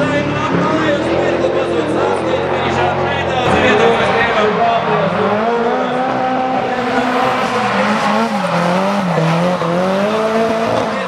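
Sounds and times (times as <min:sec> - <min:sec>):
car engines revving high: 0:00.0 - 0:11.0
tyres squealing: 0:06.6 - 0:11.0.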